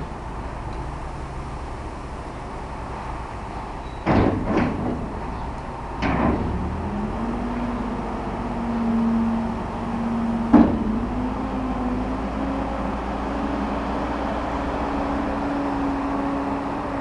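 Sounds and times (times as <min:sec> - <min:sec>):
diesel engine running: 0:00.0 - 0:17.0
loud clunk: 0:03.9 - 0:05.4, 0:06.0 - 0:06.7, 0:10.5 - 0:11.1.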